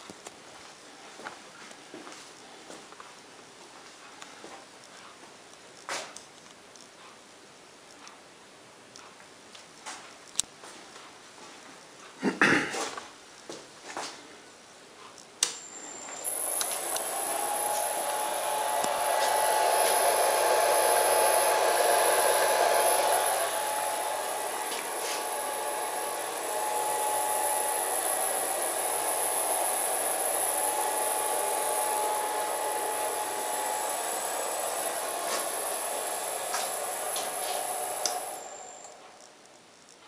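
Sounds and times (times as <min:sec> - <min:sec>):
milling machine motor whine: 0:15.6 - 0:39.3.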